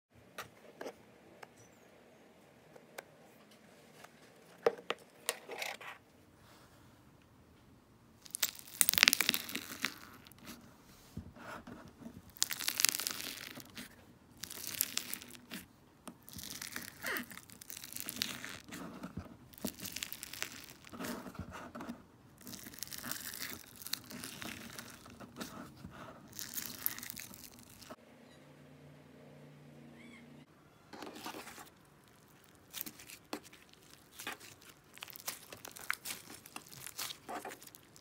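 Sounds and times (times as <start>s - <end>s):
crunchy slime crackling: 8.2s - 10.6s, 12.2s - 18.8s, 19.4s - 21.4s, 22.4s - 28.0s, 31.2s - 38.0s.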